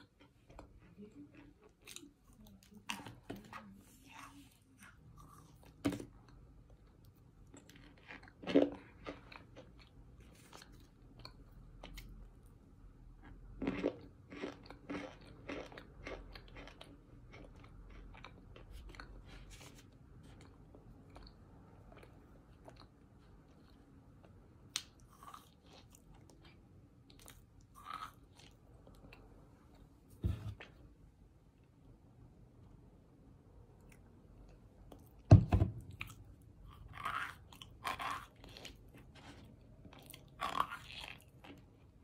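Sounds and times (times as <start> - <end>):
crunching and chewing: 4.2 - 12.4, 13.2 - 29.9, 33.8 - 42.0.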